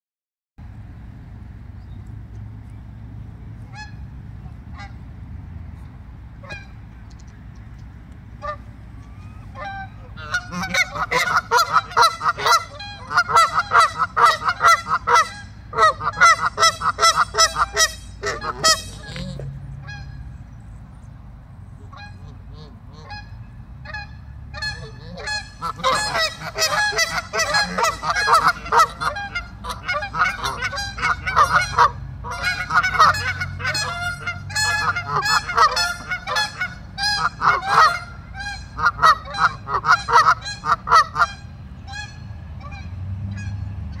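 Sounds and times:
geese honking: 3.6s - 5.0s, 6.4s - 6.8s, 8.4s - 20.4s, 21.8s - 44.0s.

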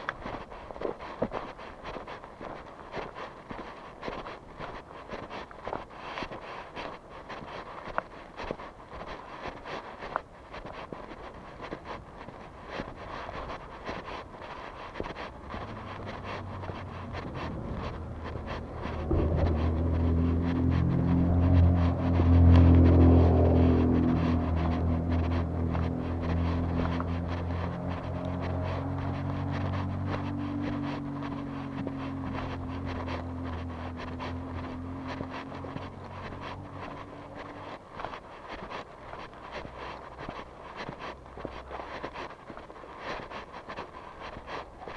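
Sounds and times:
footsteps walking: 0.0s - 44.9s
motor vehicle engine drone: 0.0s - 44.9s
street noise murmur: 0.0s - 44.9s
wind on microphone: 11.4s - 37.7s.

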